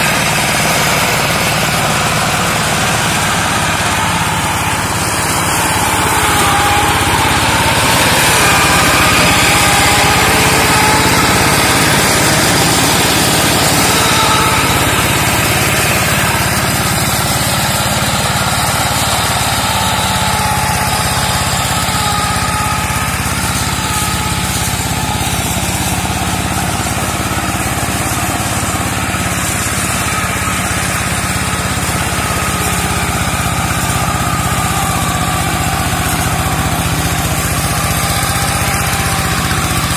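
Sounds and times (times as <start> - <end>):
hand tractor engine running: 0.0 - 39.9
mower cutting through undergrowth: 0.0 - 39.9.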